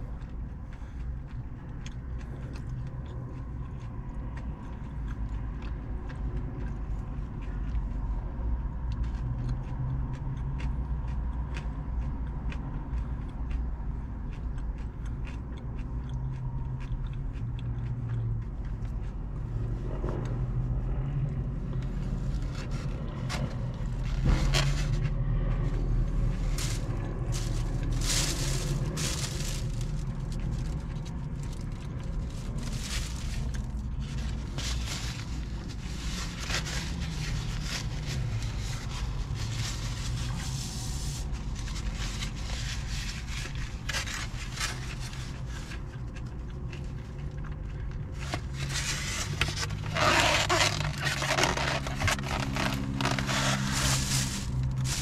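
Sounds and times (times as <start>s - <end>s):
crunchy chewing: 0.0s - 55.0s
steady low rumble: 0.0s - 55.0s
wrapper rustling: 26.3s - 45.7s, 48.2s - 55.0s.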